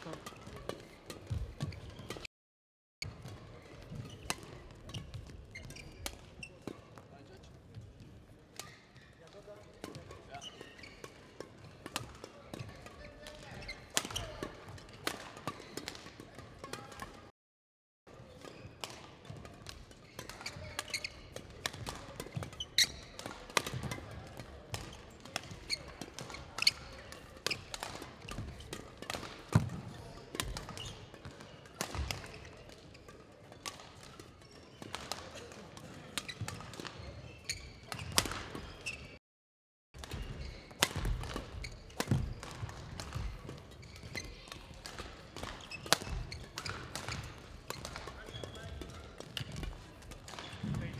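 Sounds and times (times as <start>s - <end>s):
court shoes squeaking: 0.0s - 2.3s, 3.0s - 17.3s, 18.1s - 39.2s, 40.0s - 50.9s
rackets hitting shuttlecock: 0.0s - 2.3s, 3.0s - 7.1s, 8.5s - 17.3s, 18.2s - 39.2s, 40.0s - 50.9s.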